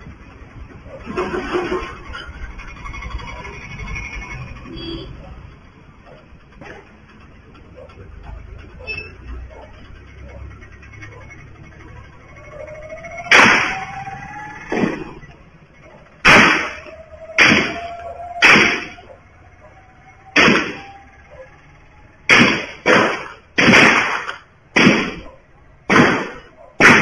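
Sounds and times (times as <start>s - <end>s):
gunshots with echo: 13.1s - 14.0s, 16.2s - 19.0s, 20.4s - 20.9s, 22.3s - 25.3s, 25.9s - 27.0s.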